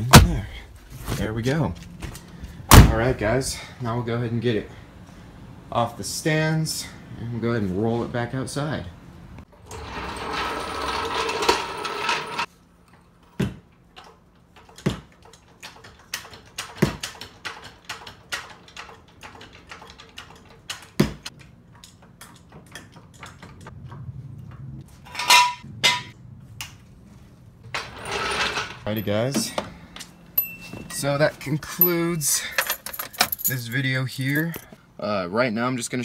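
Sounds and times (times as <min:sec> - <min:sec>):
jack dragged across concrete: 0:09.6 - 0:12.5, 0:27.7 - 0:29.0
ringing metal clank: 0:30.4 - 0:31.1.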